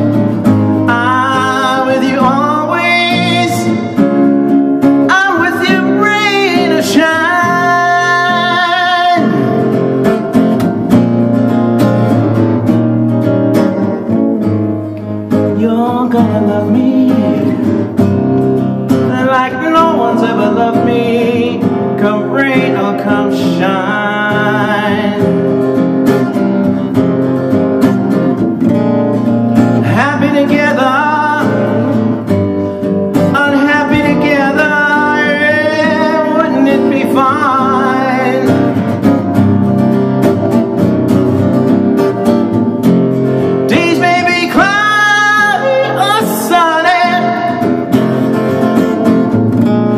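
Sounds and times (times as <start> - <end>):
man singing: 0.0 - 4.2, 4.8 - 10.2, 15.3 - 18.2, 18.9 - 25.7, 29.6 - 39.3, 43.6 - 48.8
acoustic guitar playing: 0.0 - 49.9.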